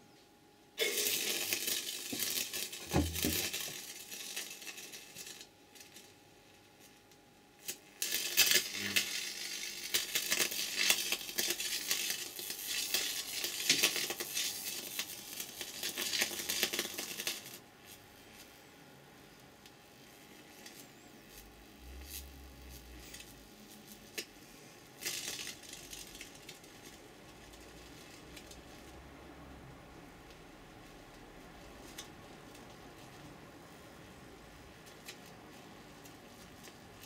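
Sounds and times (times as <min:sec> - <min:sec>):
electric arc crackling and sizzling: 0:00.8 - 0:37.0.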